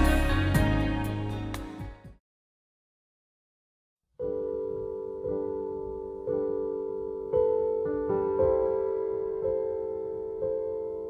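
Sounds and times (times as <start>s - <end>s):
sustained music chord: 0.0s - 1.6s.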